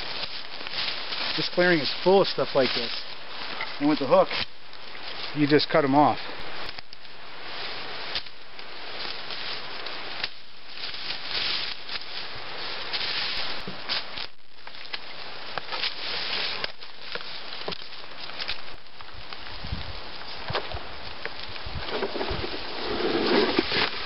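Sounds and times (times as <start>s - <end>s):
brush and leaves rustling: 0.0s - 24.0s
stems snapping: 6.6s - 7.2s, 9.8s - 11.0s, 13.8s - 19.6s.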